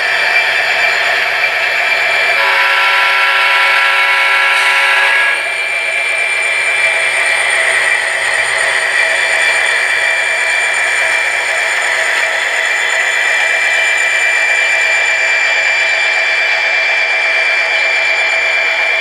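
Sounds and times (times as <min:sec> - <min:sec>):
simulated diesel engine running: 0:00.0 - 0:19.0
multi-note horn blast: 0:02.4 - 0:05.5.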